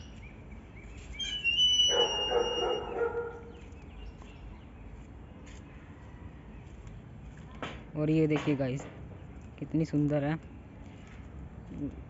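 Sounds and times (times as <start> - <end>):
high whistling animal call: 1.0 - 3.5
rough low animal call: 1.1 - 3.6.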